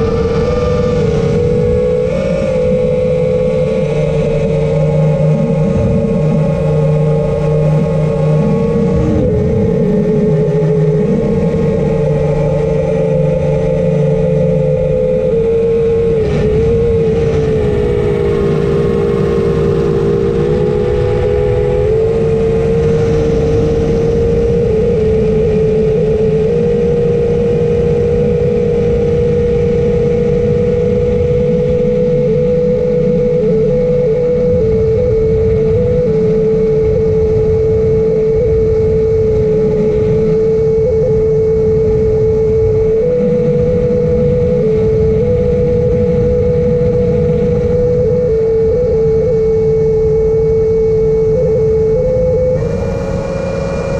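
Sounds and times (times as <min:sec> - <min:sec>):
drone propellers whining: 0:00.0 - 0:53.9.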